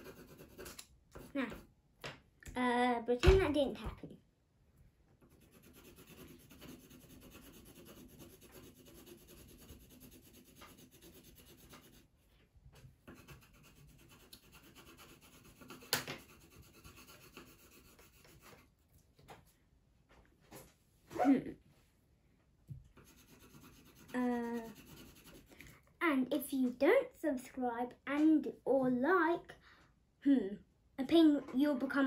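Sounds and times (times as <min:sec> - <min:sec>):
pencil scratching on paper: 0:00.0 - 0:01.6, 0:05.2 - 0:12.2, 0:13.0 - 0:18.7, 0:23.0 - 0:25.7.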